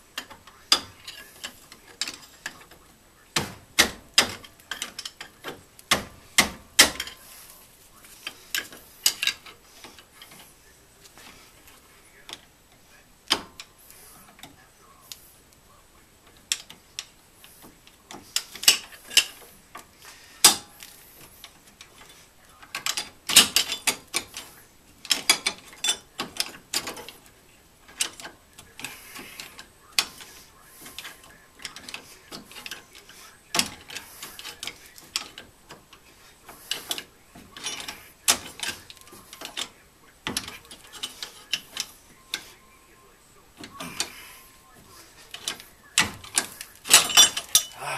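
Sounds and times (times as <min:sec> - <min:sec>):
metallic clinks: 0:45.3 - 0:47.9.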